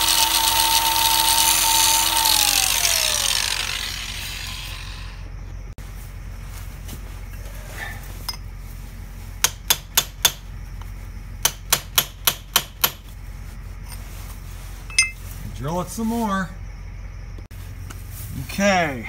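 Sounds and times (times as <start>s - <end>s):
steady low hum: 0.0s - 19.0s
hammer striking chisel on metal: 9.4s - 10.4s, 11.4s - 13.0s, 14.9s - 15.2s.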